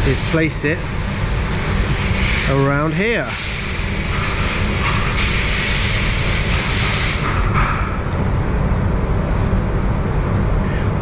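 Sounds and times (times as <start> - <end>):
low rumble of machinery: 0.0 - 11.0
hiss: 1.9 - 7.5.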